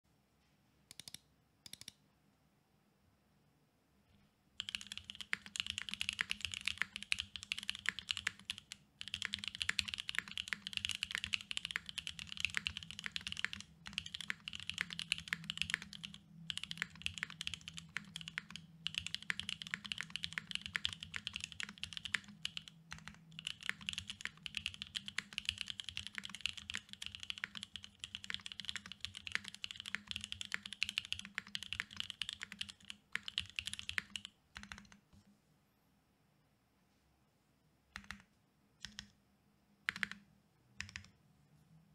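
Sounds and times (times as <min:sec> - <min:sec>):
mechanical keyboard typing: 0:00.9 - 0:02.0, 0:04.6 - 0:35.0, 0:38.0 - 0:39.2, 0:39.9 - 0:40.2, 0:40.8 - 0:41.2.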